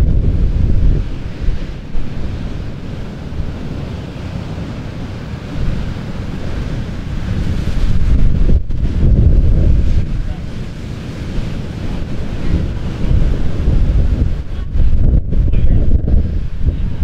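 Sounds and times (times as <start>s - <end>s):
ocean surf washing in: 0.0s - 17.0s
wind buffeting microphone: 0.0s - 17.0s.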